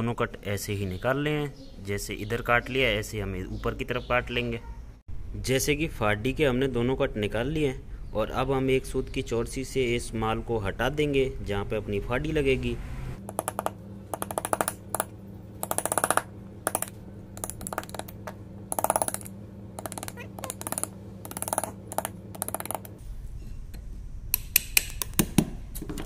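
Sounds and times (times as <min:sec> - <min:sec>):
hammer tapping chisel into wood: 0:13.3 - 0:23.0.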